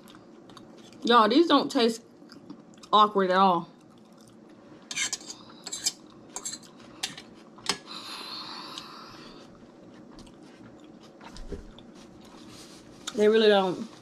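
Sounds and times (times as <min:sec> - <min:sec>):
chewing: 0:00.0 - 0:01.0, 0:02.2 - 0:03.0, 0:03.7 - 0:07.6, 0:08.7 - 0:13.2.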